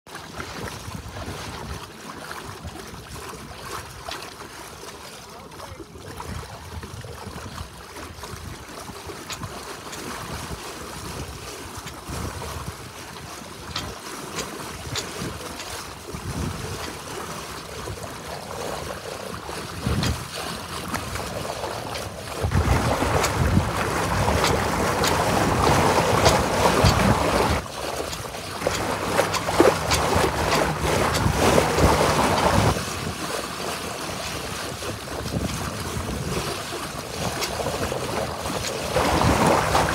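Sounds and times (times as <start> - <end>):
water rushing along boat hull: 0.0 - 39.9
wind buffeting microphone: 14.6 - 17.1, 17.7 - 33.4, 34.1 - 39.9.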